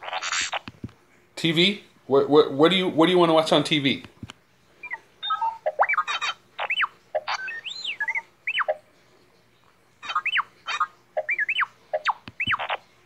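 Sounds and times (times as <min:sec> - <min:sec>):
robot beeps and whistles: 0:04.8 - 0:08.8, 0:10.0 - 0:12.8.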